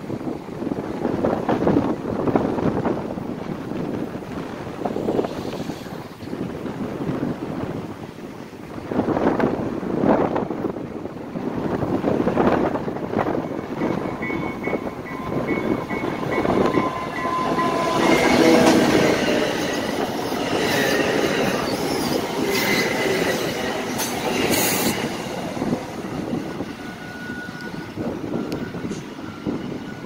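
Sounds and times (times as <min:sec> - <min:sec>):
train rumbling past: 0:00.0 - 0:30.0
thin wheel squeal: 0:20.6 - 0:25.0.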